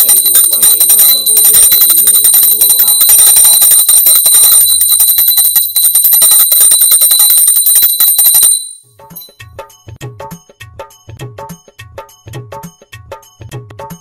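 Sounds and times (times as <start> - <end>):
small hand bell ringing: 0.0 - 9.4
music: 8.8 - 14.0.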